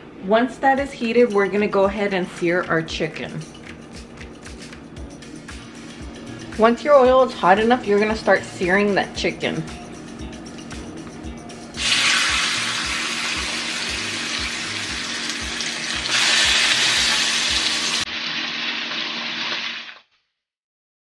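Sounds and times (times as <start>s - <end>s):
chicken sizzling in hot oil: 11.8s - 20.1s.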